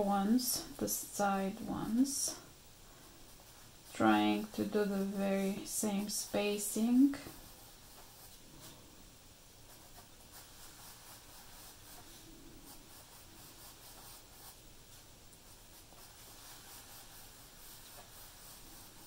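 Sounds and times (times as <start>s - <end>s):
pencil scratching on paper: 3.3s - 8.7s, 9.7s - 19.0s.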